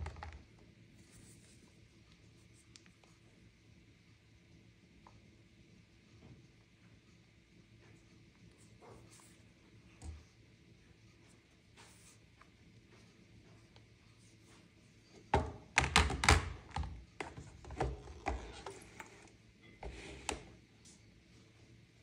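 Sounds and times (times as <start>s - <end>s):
phones knocking in plastic tubs: 15.4s - 18.0s.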